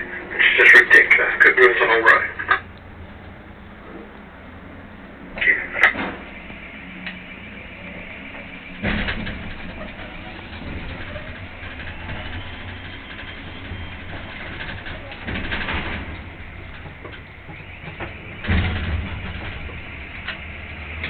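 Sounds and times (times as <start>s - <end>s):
low engine drone: 0.0s - 21.0s
loud rattle: 5.8s - 21.0s.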